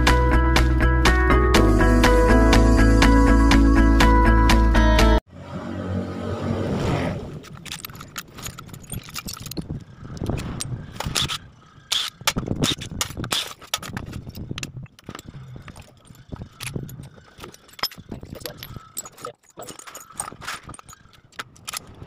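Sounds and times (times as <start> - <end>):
metallic clinks of tools: 13.8 - 21.9.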